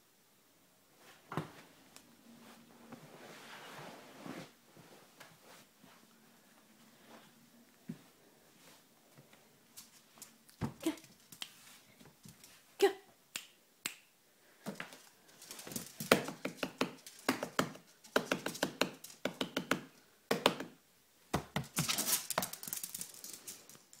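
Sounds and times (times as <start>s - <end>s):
dog claws clicking on floor: 14.7s - 19.9s, 21.6s - 24.0s.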